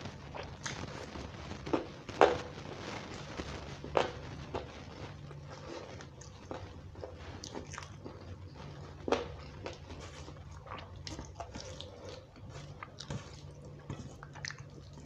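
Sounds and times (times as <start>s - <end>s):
low steady hum: 0.0s - 15.0s
wet mouth smacks and chewing: 5.9s - 15.0s.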